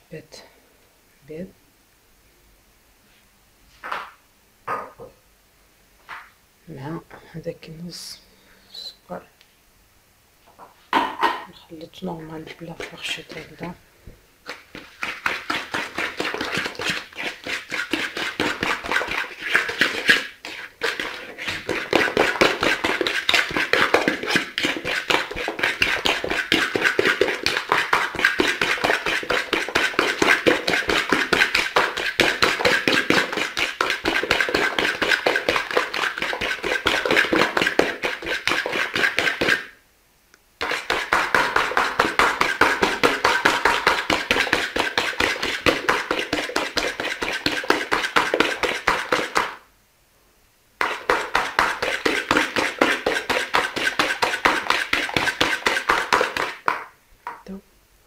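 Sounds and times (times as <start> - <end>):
whisk tapping against bowl: 12.5 - 13.8, 14.5 - 39.7, 40.6 - 49.6, 50.8 - 57.4.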